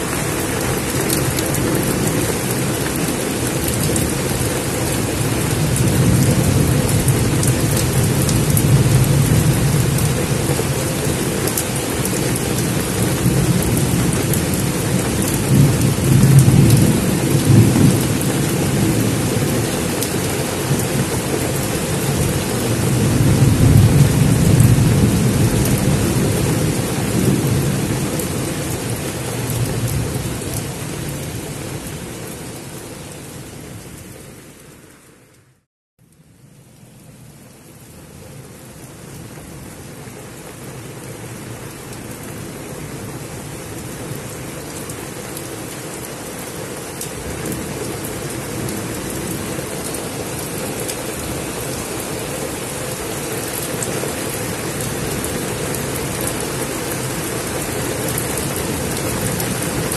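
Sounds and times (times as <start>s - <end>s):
rolling thunder rumbles: 0.0s - 31.8s
heavy rain on foliage: 0.0s - 59.9s.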